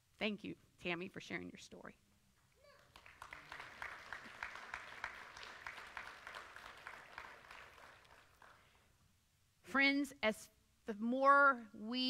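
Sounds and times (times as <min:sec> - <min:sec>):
faint congregation applauding: 0:02.8 - 0:08.7.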